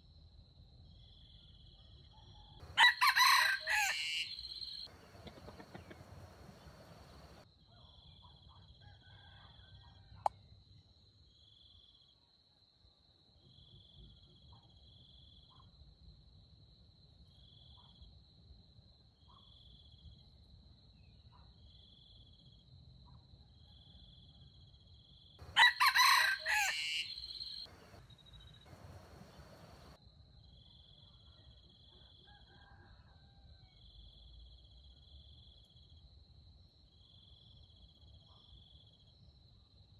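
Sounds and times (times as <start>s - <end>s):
insect chirps: 0.6s - 8.2s, 23.7s - 31.9s
rooster crowing: 2.6s - 7.4s, 25.4s - 28.0s, 28.7s - 30.0s, 32.3s - 33.7s
insects droning: 2.6s - 7.5s, 24.8s - 31.0s.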